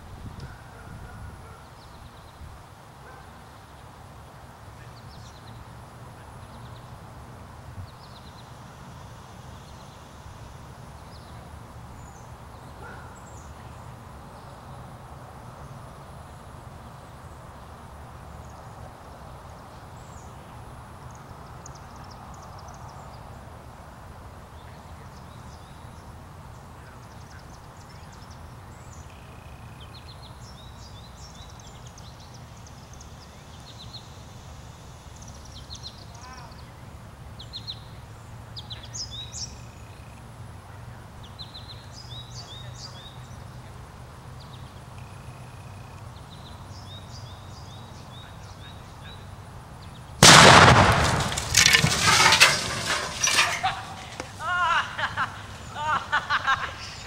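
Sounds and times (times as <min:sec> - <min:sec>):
low rumble and hiss: 0:02.0 - 0:57.0
birds chirping: 0:40.9 - 0:57.0.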